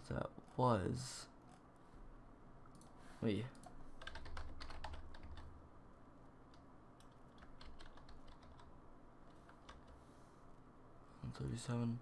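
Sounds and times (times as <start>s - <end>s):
faint typing on keyboard: 2.6s - 5.6s, 6.4s - 10.1s.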